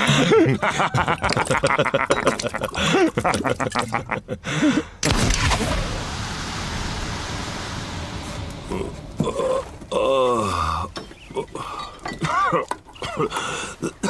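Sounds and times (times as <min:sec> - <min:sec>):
men laughing: 0:00.0 - 0:05.0, 0:08.7 - 0:14.0
outdoor ambience hiss: 0:00.0 - 0:14.0.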